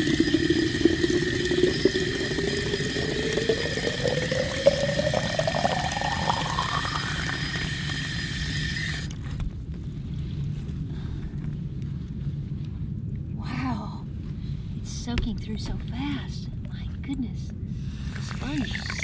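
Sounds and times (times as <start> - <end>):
water pouring into clay pot: 0.0 - 9.2, 18.0 - 19.0.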